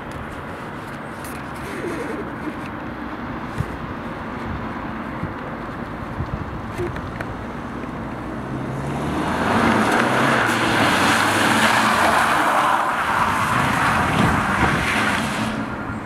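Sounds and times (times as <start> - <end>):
car engine passing: 7.5 - 16.0
tyres hissing on wet road: 8.7 - 15.9.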